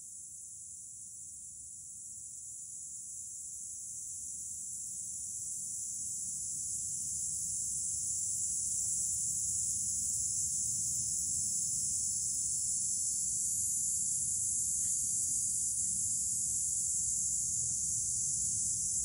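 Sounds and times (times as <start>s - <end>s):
cicadas buzzing: 4.5s - 19.0s.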